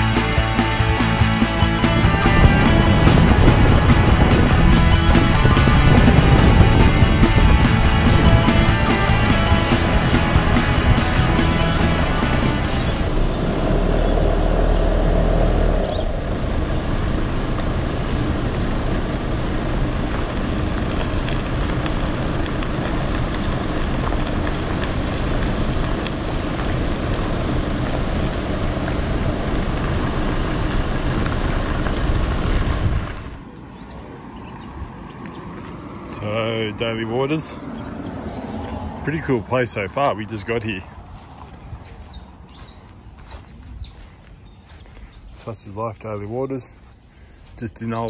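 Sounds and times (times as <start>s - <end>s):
low hum: 0.0s - 37.0s
outdoor background: 0.0s - 48.0s
road and wind noise: 0.0s - 48.0s.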